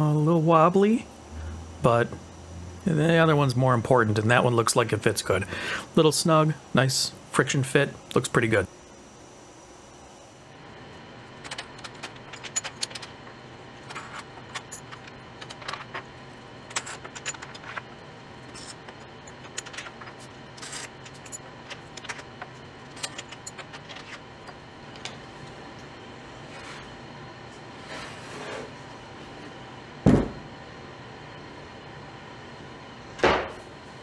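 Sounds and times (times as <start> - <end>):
steady low hum: 0.0 - 34.0
clamps and bolts clicking and clinking: 11.4 - 13.2, 16.7 - 17.9, 18.5 - 25.2.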